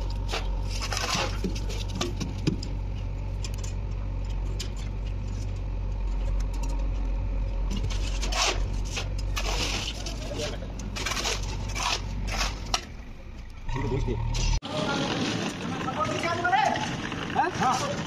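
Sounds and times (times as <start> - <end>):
metal pans and shovels clinking: 7.7 - 12.9
shovel scraping wet concrete: 7.8 - 12.9.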